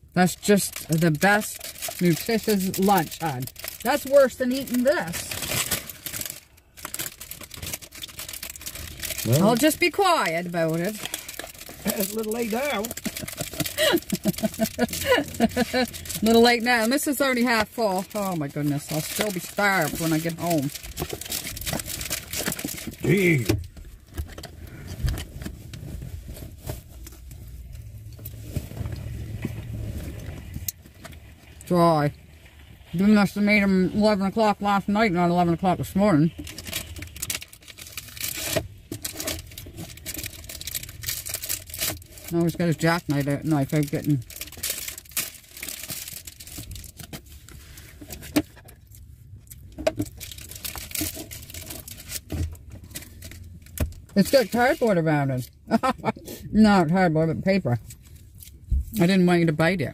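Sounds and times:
car hum: 0.0s - 59.9s
paper wrapper crinkling: 0.2s - 56.1s
rustling: 0.8s - 34.2s, 36.2s - 54.9s.

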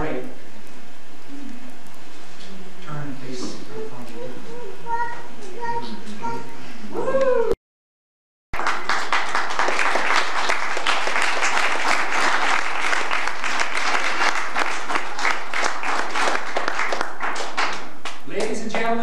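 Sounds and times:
crowd applauding: 8.6s - 19.0s.

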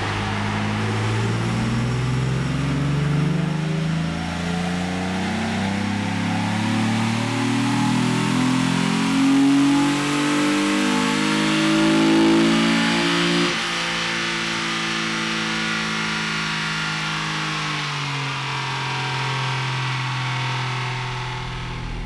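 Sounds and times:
engine under full load: 0.0s - 22.0s.

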